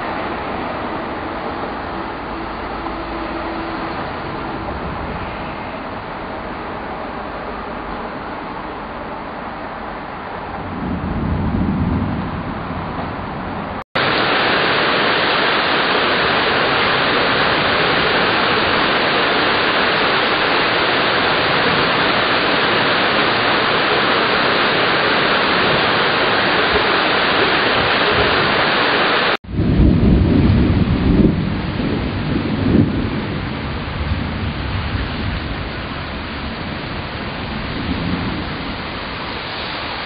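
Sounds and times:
heavy rain pouring: 0:00.0 - 0:40.0
low rumble of thunder: 0:10.4 - 0:28.6, 0:29.4 - 0:39.9.

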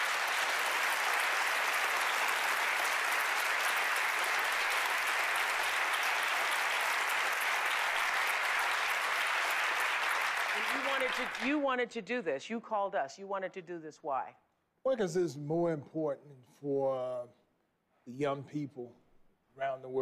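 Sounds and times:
audience applauding: 0:00.0 - 0:11.6.

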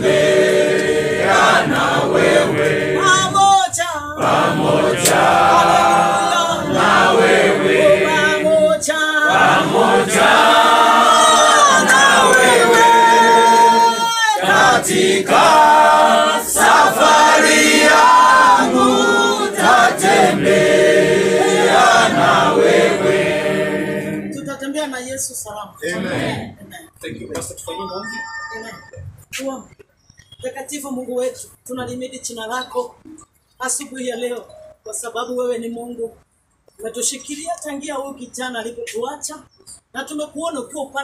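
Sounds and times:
group singing a hymn unaccompanied: 0:00.0 - 0:03.5, 0:04.2 - 0:24.4.

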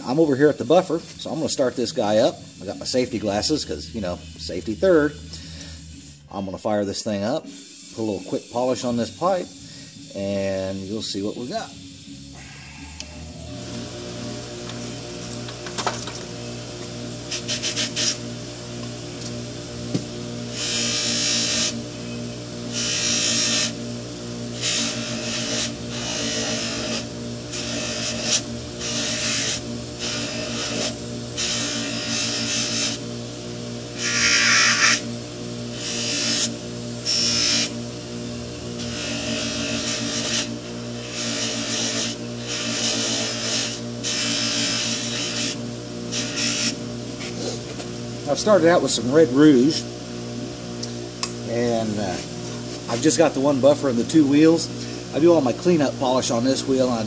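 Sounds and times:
buffer motor humming: 0:00.0 - 0:57.0
pipe rubbing on buffing wheel: 0:17.3 - 0:18.2, 0:22.7 - 0:23.8, 0:24.5 - 0:33.0, 0:34.0 - 0:35.1, 0:38.8 - 0:47.7.

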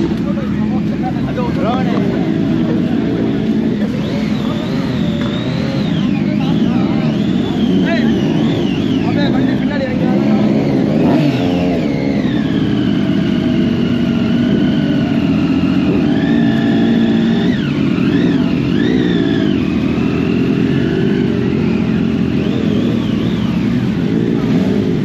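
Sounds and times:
motorcycle engines idling: 0:00.0 - 0:25.0
motorcycle throttle blips: 0:00.0 - 0:25.0.

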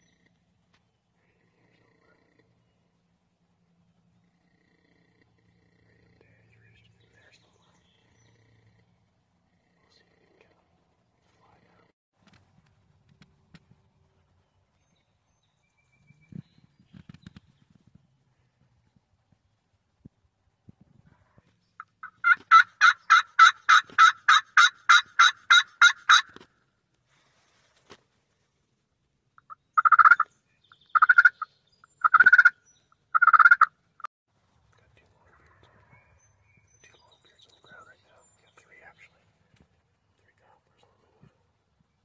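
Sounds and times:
faint outdoor hiss: 0:00.0 - 0:22.9, 0:26.3 - 0:42.0
turkey yelping: 0:21.8 - 0:26.4, 0:29.4 - 0:30.3, 0:30.9 - 0:31.4, 0:32.0 - 0:33.7.

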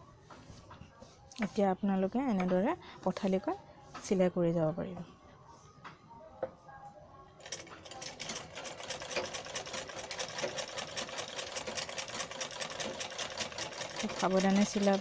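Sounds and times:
sewing machine stitching: 0:07.4 - 0:15.0.

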